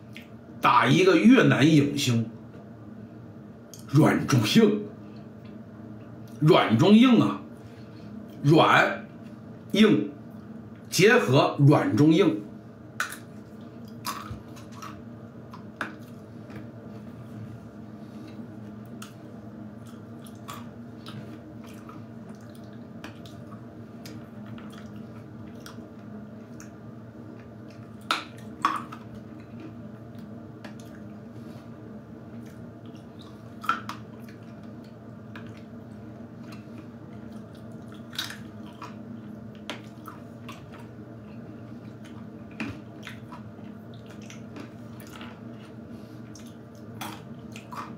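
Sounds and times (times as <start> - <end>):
person chewing nuts: 13.0 - 17.4, 18.2 - 31.2, 32.3 - 47.9.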